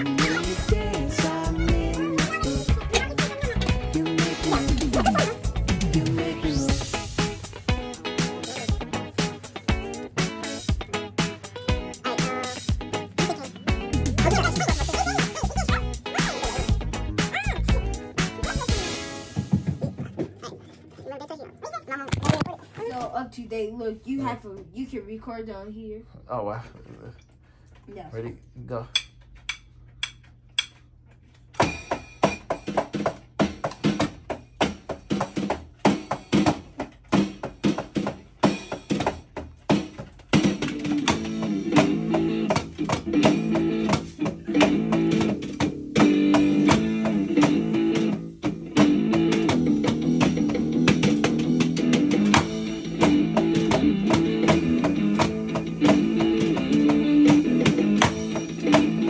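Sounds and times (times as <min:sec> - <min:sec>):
guitar-driven backing music: 0:00.0 - 0:19.6, 0:40.4 - 0:59.0
electronic drum kit beat: 0:00.0 - 0:20.3, 0:31.7 - 0:59.0
electronic drum strikes: 0:16.6 - 0:20.2.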